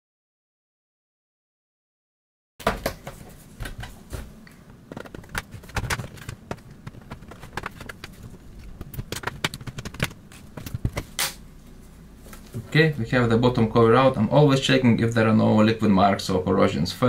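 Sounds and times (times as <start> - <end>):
laptop case clicks and knocks: 4.9 - 11.2.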